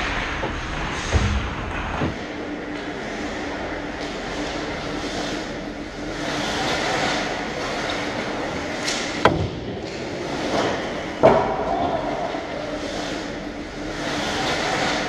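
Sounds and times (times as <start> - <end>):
skates scraping on ice: 6.1 - 9.0, 12.0 - 15.0.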